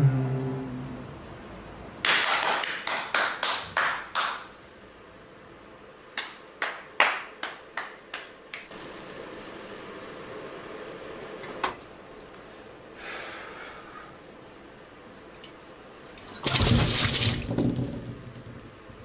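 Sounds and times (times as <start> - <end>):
sharp snaps: 6.2 - 8.7.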